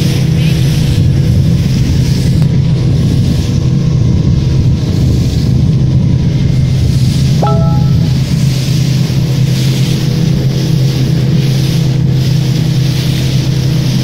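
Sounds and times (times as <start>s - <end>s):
brief higher tone: 7.4s - 8.3s.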